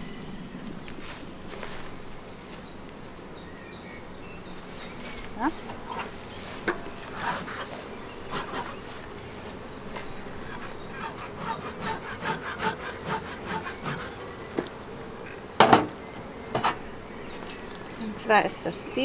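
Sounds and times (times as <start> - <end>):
bees humming: 0.0 - 19.0
bee smoker bellows puffs: 4.4 - 19.0.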